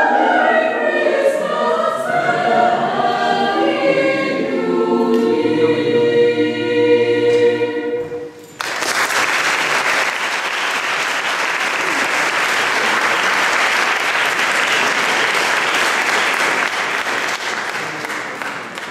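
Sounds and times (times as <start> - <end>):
audience applauding: 8.5 - 18.9.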